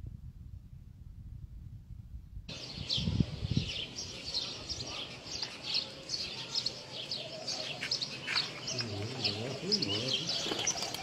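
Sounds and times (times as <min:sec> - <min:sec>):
small birds chirping: 0:02.5 - 0:11.0.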